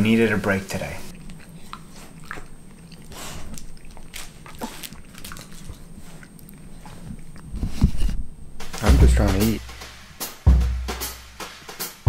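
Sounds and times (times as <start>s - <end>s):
chewing: 0.1s - 8.3s
dog sniffing: 0.4s - 8.8s.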